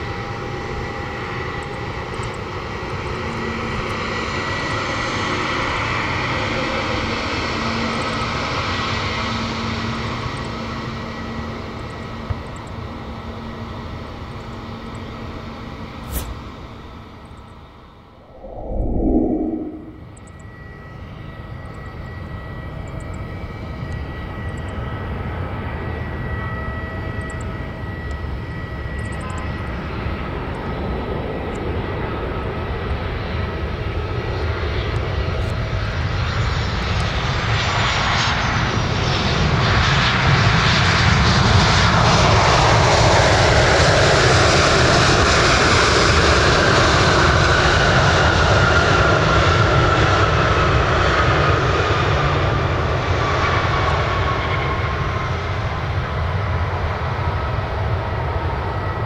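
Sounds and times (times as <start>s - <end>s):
jet engine whine: 0.0s - 59.0s
jet engines landing: 18.1s - 20.5s.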